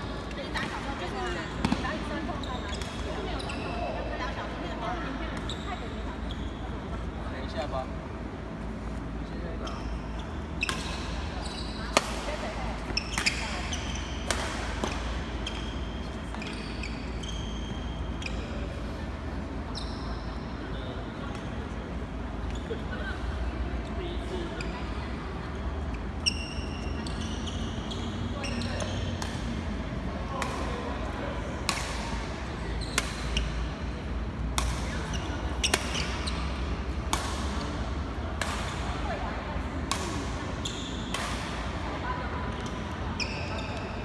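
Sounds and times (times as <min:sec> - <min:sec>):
shoes squeaking on court floor: 0:00.0 - 0:07.0, 0:09.5 - 0:18.8, 0:19.6 - 0:21.6, 0:25.8 - 0:29.7, 0:32.0 - 0:38.0, 0:40.1 - 0:41.7, 0:42.4 - 0:44.0
racket hitting shuttlecock: 0:01.6 - 0:01.9, 0:11.9 - 0:15.6, 0:29.2 - 0:29.6, 0:31.6 - 0:32.4, 0:33.0 - 0:33.6, 0:34.5 - 0:39.0, 0:39.9 - 0:40.4, 0:41.1 - 0:41.7.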